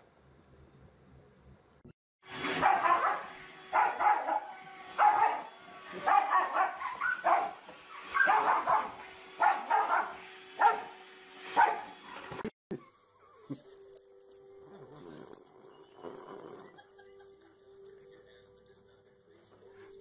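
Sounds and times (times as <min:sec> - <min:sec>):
vacuum motor humming: 0:02.2 - 0:12.5
small dog barking: 0:02.6 - 0:10.9.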